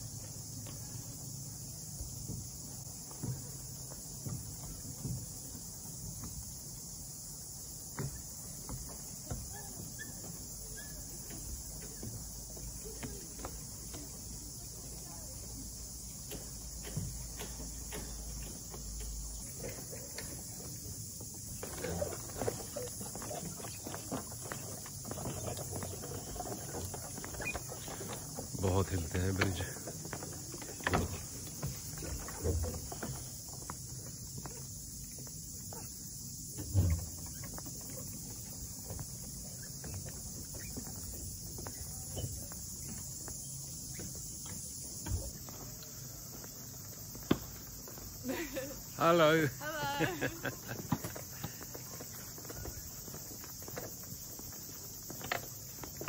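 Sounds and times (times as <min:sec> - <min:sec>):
footsteps on wooden boards: 0:00.0 - 0:56.0
wood creaking: 0:21.4 - 0:34.6
steady high hiss: 0:27.0 - 0:56.0.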